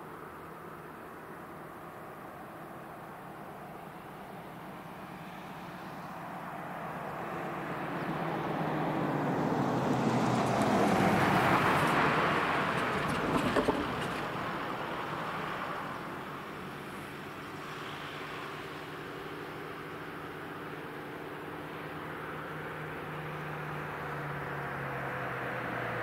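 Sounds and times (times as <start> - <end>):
car driving past: 5.0 - 16.0.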